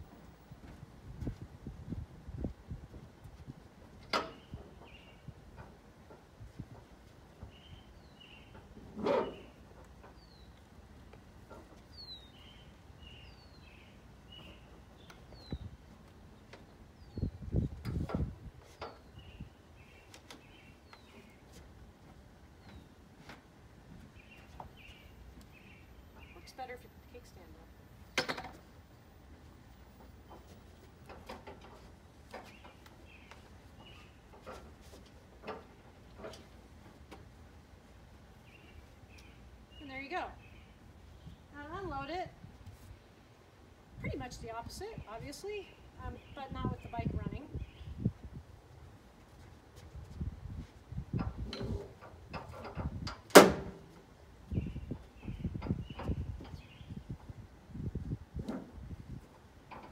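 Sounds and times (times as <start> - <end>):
bird chirping: 7.4 - 10.7, 11.9 - 15.7, 32.4 - 34.3, 54.5 - 57.1.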